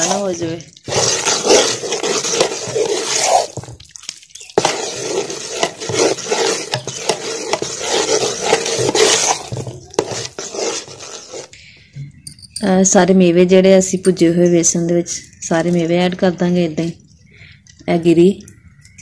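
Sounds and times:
metal spoon scraping a pot: 0.0 - 3.8, 4.4 - 11.6.

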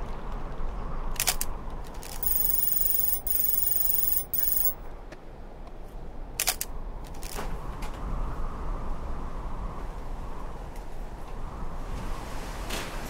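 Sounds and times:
buzzy digital tone: 2.2 - 4.8.

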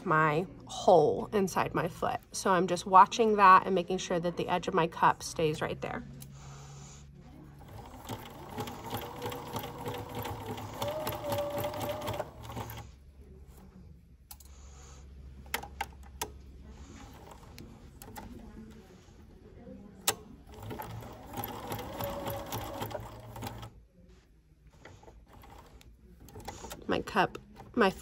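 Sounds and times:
sewing machine sewing: 7.5 - 12.9, 16.9 - 18.4, 20.0 - 23.8, 24.8 - 28.0.

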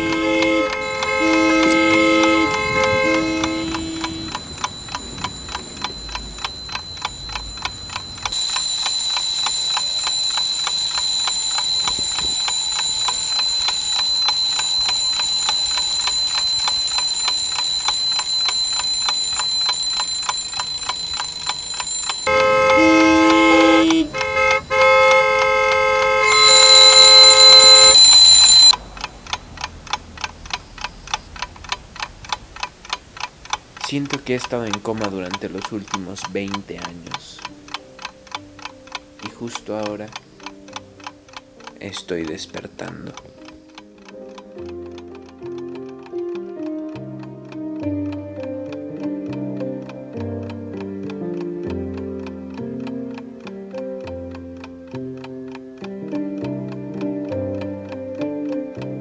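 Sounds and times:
sustained music chords: 0.0 - 8.4, 22.3 - 28.6
steady high-pitched tone: 0.0 - 29.0
clock ticking: 0.0 - 59.0.

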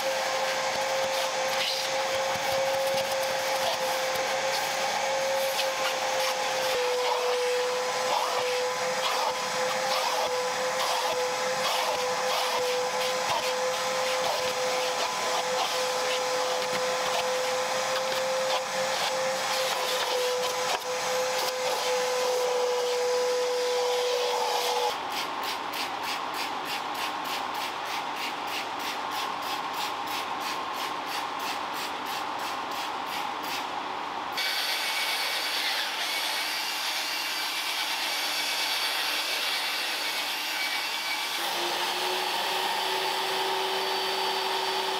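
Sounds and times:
vacuum cleaner motor whine: 0.0 - 25.0, 34.4 - 44.9.

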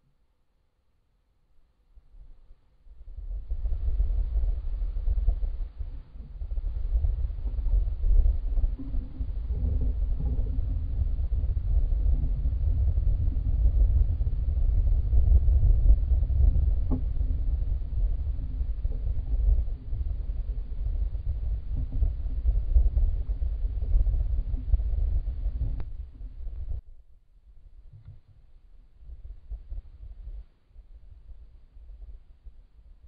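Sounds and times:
low rumbling noise: 2.8 - 27.0
faint click: 25.7 - 26.7, 27.9 - 28.4.

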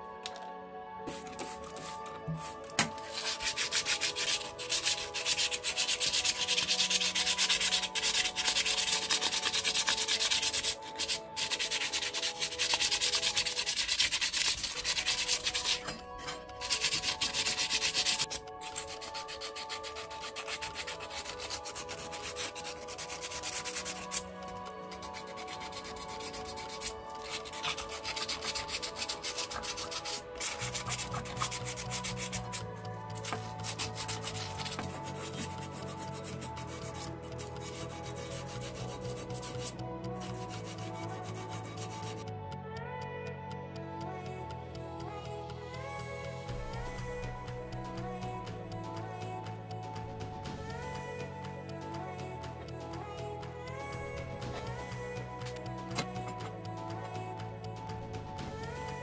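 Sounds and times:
sandpaper rasping on metal: 1.4 - 24.2, 24.9 - 32.6, 33.2 - 42.2.

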